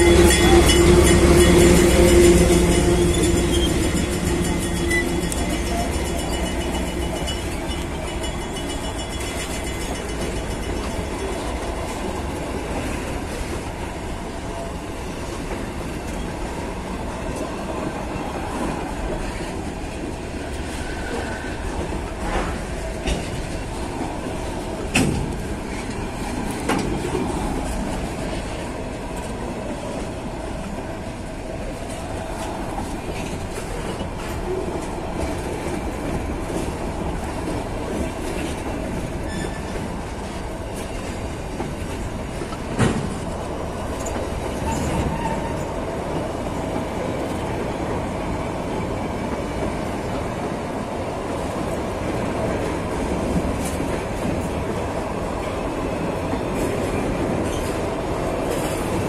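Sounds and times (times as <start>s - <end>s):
wheels rumbling on rail: 0.0s - 59.0s
faint wheel squeal: 39.3s - 39.8s.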